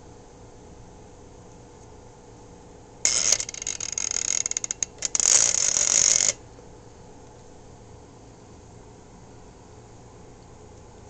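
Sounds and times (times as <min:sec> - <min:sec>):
rotary telephone dial whirring: 0:03.1 - 0:06.4.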